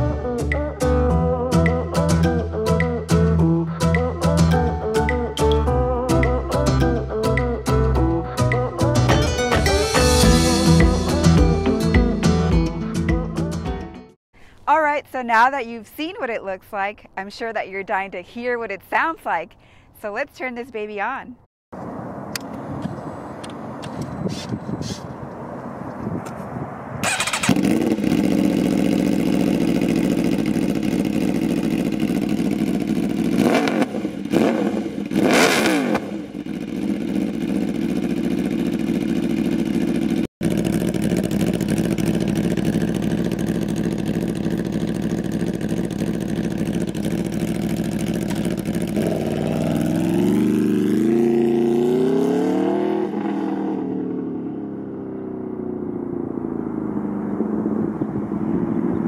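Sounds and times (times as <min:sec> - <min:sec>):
motorcycle throttle blips: 0:27.0 - 0:51.7, 0:55.7 - 0:59.0
motorcycle pulling away: 0:27.0 - 0:59.0
motorcycle engine idling: 0:27.1 - 0:34.3, 0:36.1 - 0:50.6, 0:55.0 - 0:59.0.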